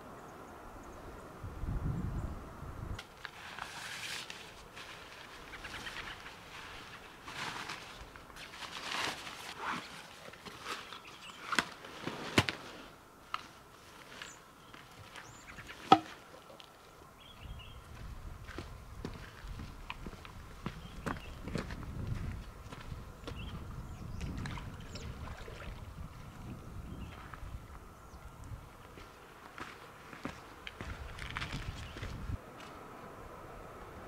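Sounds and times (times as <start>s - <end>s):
rustling and scraping on gravel: 3.0s - 16.9s, 28.9s - 32.8s.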